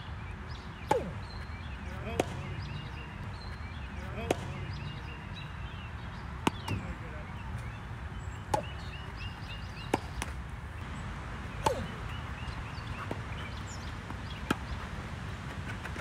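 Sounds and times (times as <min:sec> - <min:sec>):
tennis ball struck by rackets: 0:00.8 - 0:01.4, 0:02.1 - 0:03.0, 0:04.2 - 0:05.2, 0:06.4 - 0:07.0, 0:08.4 - 0:10.4, 0:11.5 - 0:14.9
tennis ball bouncing on hard court: 0:00.9 - 0:01.4, 0:06.4 - 0:07.0, 0:08.4 - 0:10.4, 0:11.6 - 0:15.0.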